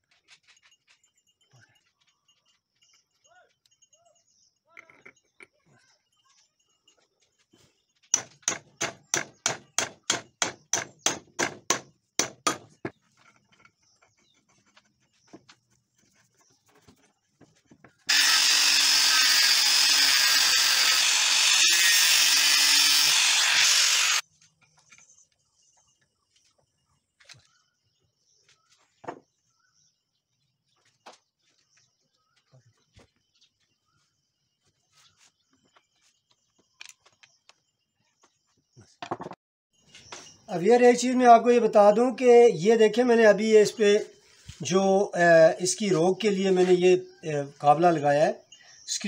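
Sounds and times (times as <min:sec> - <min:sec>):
angle grinder cutting steel: 0:18.1 - 0:24.2.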